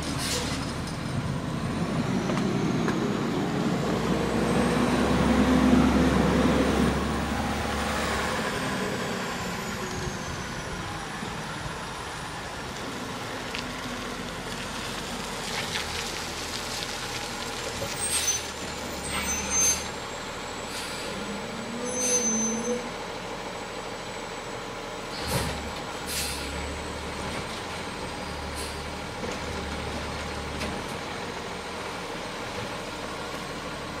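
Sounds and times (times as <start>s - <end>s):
diesel engine rumbling: 0.0s - 34.0s
air brake hisses: 26.1s - 26.6s.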